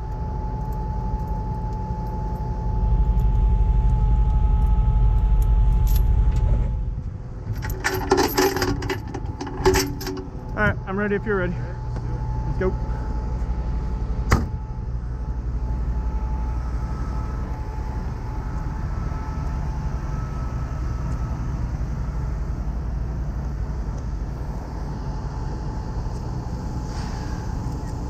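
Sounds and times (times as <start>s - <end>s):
diesel engine idling: 0.0s - 28.0s
faint steady whine: 0.0s - 28.0s.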